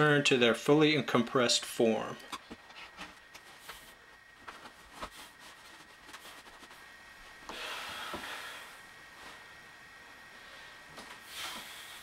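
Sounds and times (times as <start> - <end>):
fabric rustling: 2.7 - 7.4.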